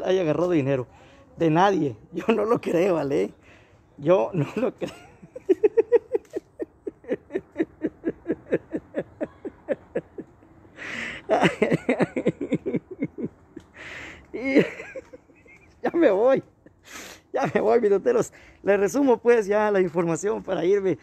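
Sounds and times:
man laughing hard: 0:04.4 - 0:16.8
gasping in-breath: 0:10.7 - 0:11.3, 0:13.7 - 0:14.4.

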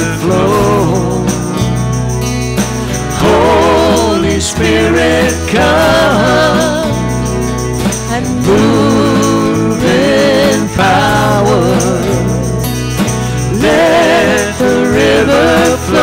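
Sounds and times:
worship band playing: 0:00.0 - 0:16.0
woman singing lead: 0:03.2 - 0:12.7, 0:13.5 - 0:16.0.

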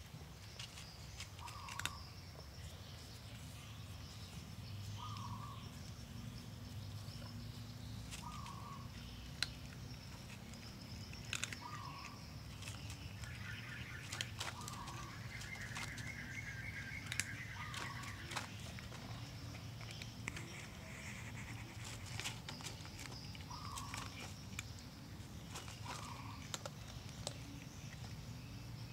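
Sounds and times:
cat crunching dry kibble: 0:00.1 - 0:04.6, 0:05.8 - 0:28.3.

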